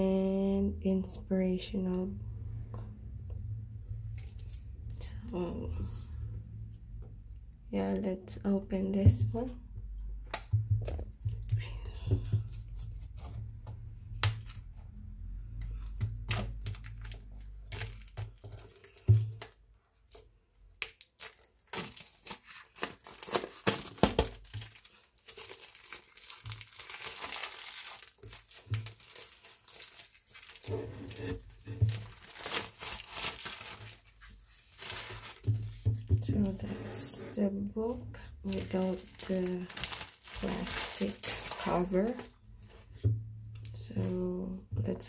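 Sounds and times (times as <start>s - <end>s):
plastic film crinkling: 15.5s - 20.2s, 20.8s - 36.6s, 38.4s - 42.4s
plastic film tearing: 20.8s - 35.7s, 38.5s - 42.4s.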